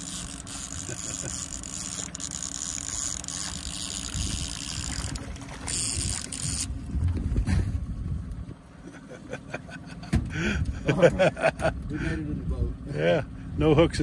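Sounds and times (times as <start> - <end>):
fishing reel cranking: 0.0 - 6.7
boat motor running: 0.0 - 14.0.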